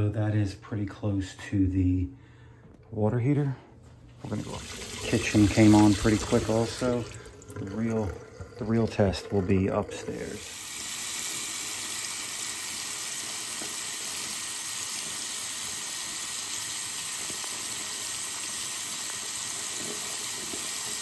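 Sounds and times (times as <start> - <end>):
faucet water splashing into sink: 4.2 - 21.0.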